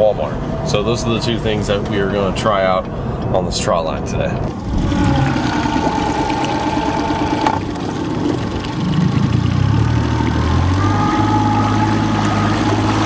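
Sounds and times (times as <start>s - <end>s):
outboard motor running: 4.4s - 13.0s.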